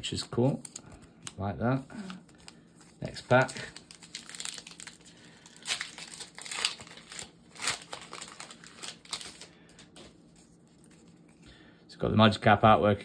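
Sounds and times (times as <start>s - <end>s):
foil wrapper crinkling: 0.1s - 11.3s.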